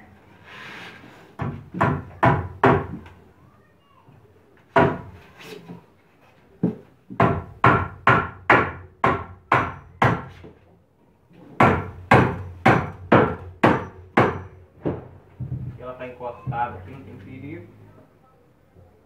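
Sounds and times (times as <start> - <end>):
hammer driving nails into wood: 11.6 - 14.5.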